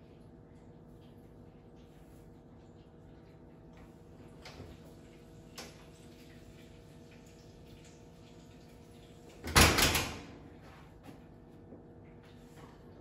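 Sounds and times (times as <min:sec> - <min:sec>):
oven door opening with clicks: 0:09.4 - 0:10.4.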